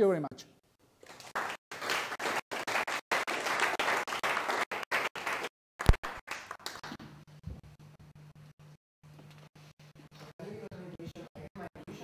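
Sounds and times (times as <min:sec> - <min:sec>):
audience applauding: 0:01.1 - 0:06.9.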